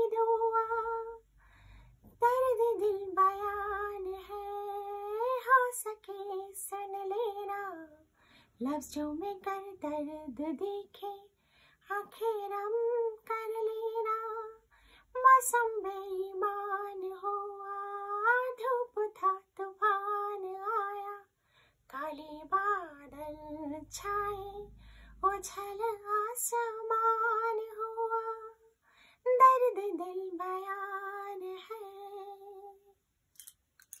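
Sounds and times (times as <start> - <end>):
woman singing unaccompanied: 0.0 - 1.3, 2.1 - 21.3, 21.9 - 33.0.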